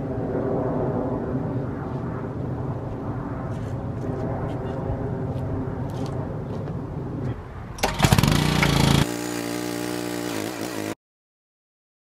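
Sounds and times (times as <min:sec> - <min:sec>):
small gas engine running: 0:07.8 - 0:11.0.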